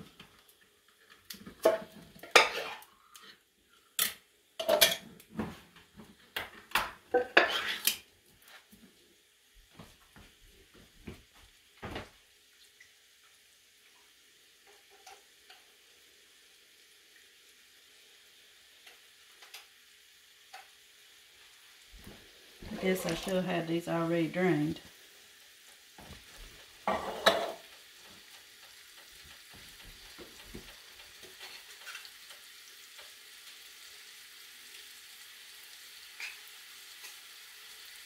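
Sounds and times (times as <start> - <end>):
faint sizzle from frying pan: 0.0 - 38.0
metal cans and pot clanking: 1.5 - 2.8, 4.0 - 5.1, 6.8 - 8.0, 22.7 - 23.5, 26.8 - 27.7.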